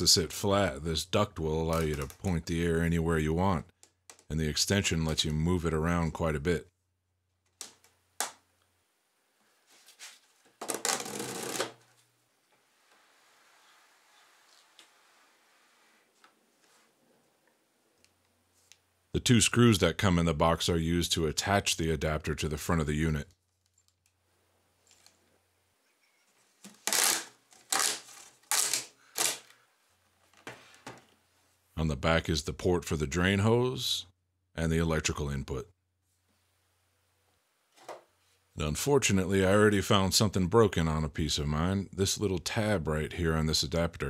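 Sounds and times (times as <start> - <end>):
plastic parts scraping and rattling: 1.7 - 2.3
plastic hose crinkling rustle: 9.8 - 12.0, 26.6 - 29.6.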